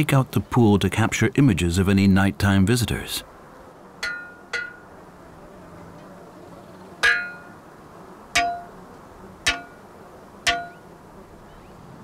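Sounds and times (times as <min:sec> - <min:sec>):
metal post clanking when pounded: 0:04.0 - 0:04.8, 0:07.0 - 0:07.5, 0:08.4 - 0:08.7, 0:09.5 - 0:09.7, 0:10.5 - 0:10.8.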